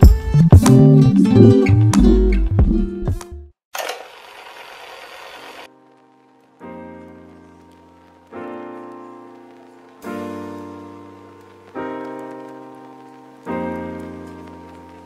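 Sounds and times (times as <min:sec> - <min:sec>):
slow piano chords: 0:05.7 - 0:15.0.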